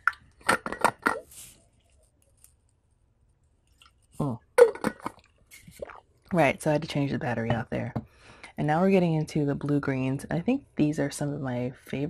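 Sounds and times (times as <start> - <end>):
person gulping water: 0.0 - 1.3, 3.7 - 6.4.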